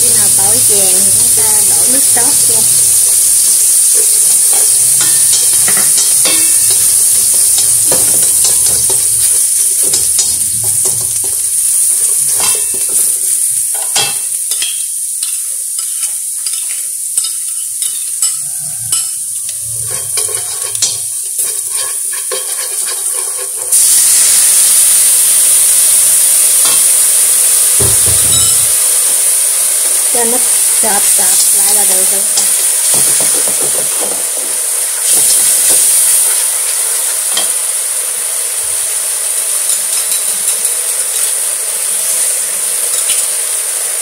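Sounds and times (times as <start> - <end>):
garlic sizzling in oil: 0.0 - 44.0
sauce hissing in hot oil: 0.0 - 44.0
chopsticks scraping a pan: 3.7 - 13.1, 13.8 - 24.0.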